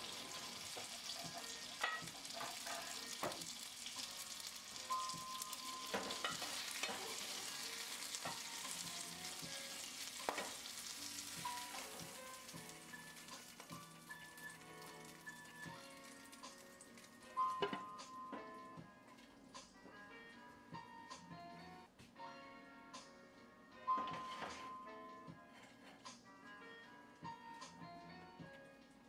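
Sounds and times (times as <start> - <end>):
spatula scraping a pan: 0.0 - 12.5
fish sizzling in a frying pan: 0.0 - 17.7.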